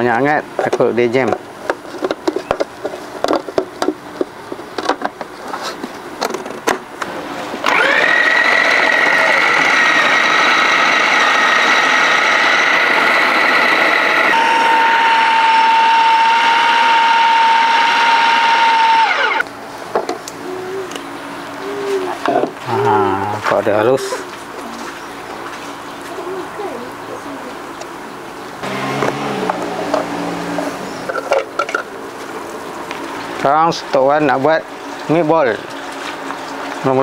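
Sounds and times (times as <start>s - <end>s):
food processor motor whining: 7.6s - 19.5s, 28.6s - 31.3s.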